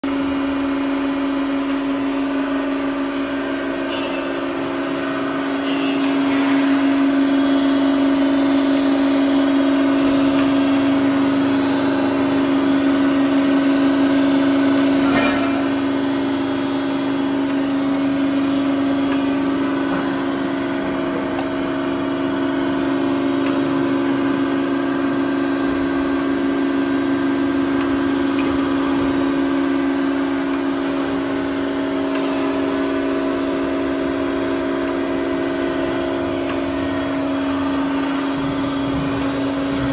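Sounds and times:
grinder motor hum: 0.0s - 39.9s
clunk: 15.0s - 15.8s.

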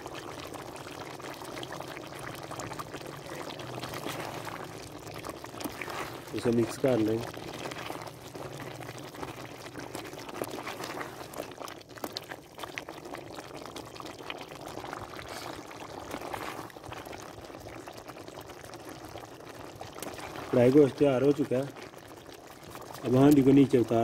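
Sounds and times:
gravy bubbling and sizzling: 0.0s - 24.0s
spatula stirring meat: 3.2s - 12.3s.

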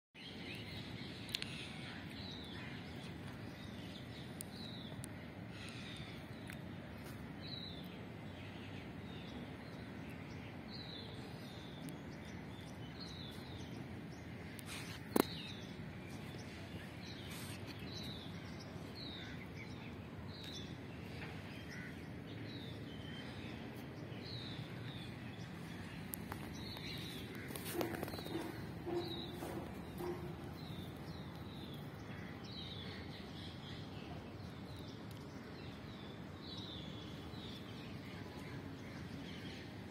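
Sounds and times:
birds chirping: 0.2s - 39.9s.

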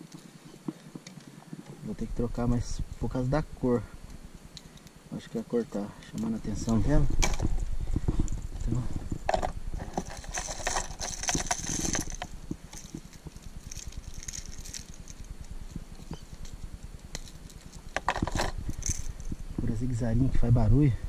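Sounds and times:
fishing tackle clicking and rattling: 7.2s - 19.4s.

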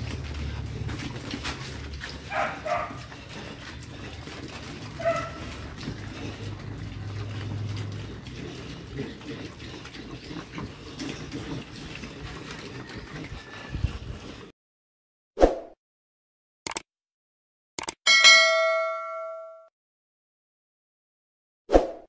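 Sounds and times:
piglets munching and snuffling: 0.0s - 14.5s.

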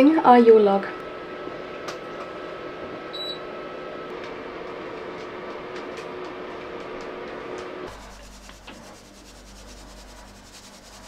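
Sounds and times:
mechanical hum: 0.0s - 11.0s.

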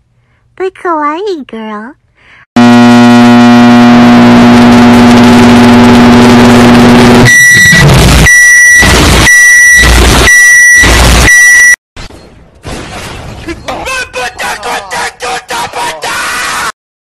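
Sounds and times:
electronic buzzing drone: 2.6s - 11.8s
high beep: 7.3s - 11.8s.

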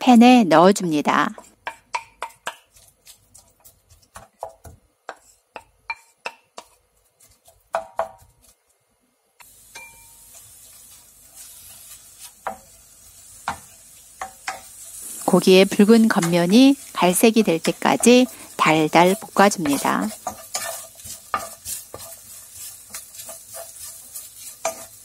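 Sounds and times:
wooden spatula knocking on pan: 1.3s - 2.7s, 4.0s - 6.8s, 7.7s - 8.3s
meat sizzling in pan: 9.4s - 25.0s.

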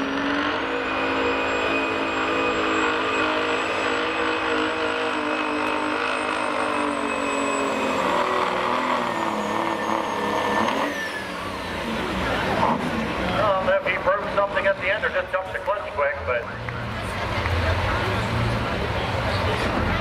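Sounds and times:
diesel truck engine at high revs: 0.0s - 20.0s
high turbo whistle: 0.2s - 11.8s.

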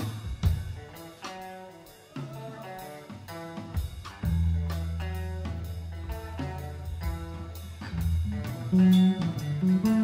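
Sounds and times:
electric guitar: 0.0s - 10.0s
drum strikes: 6.2s - 10.0s.

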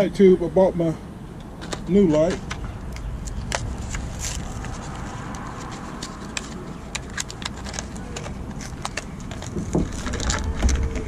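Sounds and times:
steady low rumble: 1.0s - 11.0s
plastic packaging crackling: 3.4s - 11.0s.

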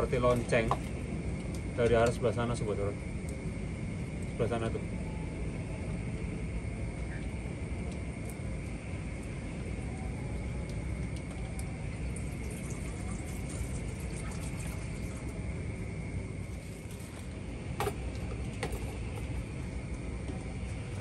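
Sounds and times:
thin high-pitched hum: 4.9s - 21.0s.

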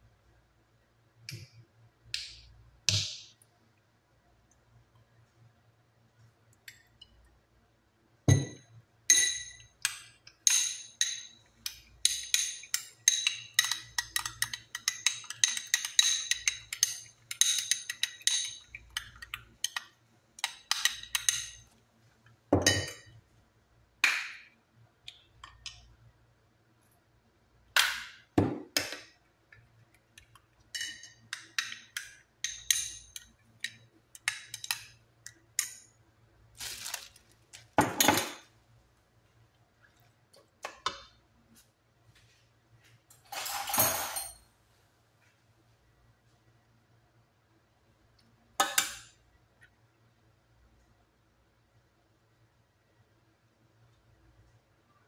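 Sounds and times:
spoon clinking in glass: 8.3s - 9.8s, 30.7s - 34.9s.

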